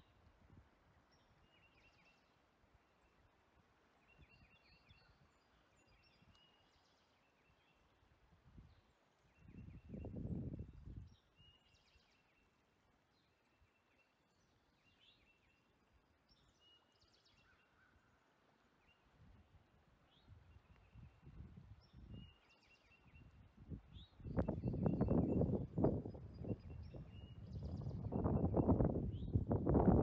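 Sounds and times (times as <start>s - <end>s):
wind rumbling on microphone: 8.4s - 11.2s, 20.2s - 22.4s, 23.0s - 30.0s
small birds chirping: 20.1s - 30.0s.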